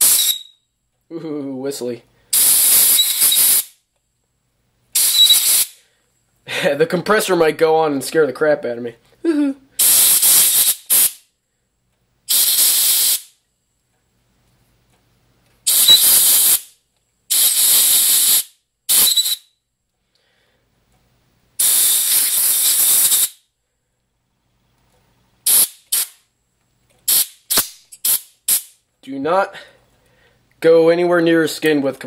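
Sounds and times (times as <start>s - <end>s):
compressed air blasts hissing: 0.0s - 0.4s, 2.3s - 3.8s, 5.0s - 5.8s, 9.8s - 11.2s, 12.3s - 13.4s, 15.6s - 16.7s, 17.3s - 19.4s, 21.6s - 23.4s, 25.4s - 26.2s, 27.0s - 28.8s
quick air puffs: 0.0s - 0.4s, 2.3s - 3.8s, 5.0s - 5.9s, 9.8s - 11.2s, 12.3s - 13.4s, 15.6s - 16.7s, 17.3s - 19.4s, 21.6s - 23.4s, 25.4s - 26.2s, 27.0s - 28.8s
faint whistle: 0.0s - 0.7s, 5.0s - 5.6s, 15.7s - 16.2s, 18.9s - 19.6s.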